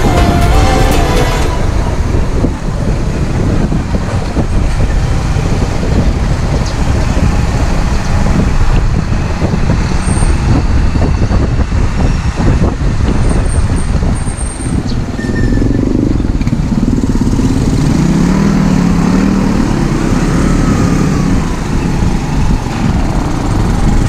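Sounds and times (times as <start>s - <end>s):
wind rushing: 0.0s - 15.1s
road noise: 0.0s - 24.0s.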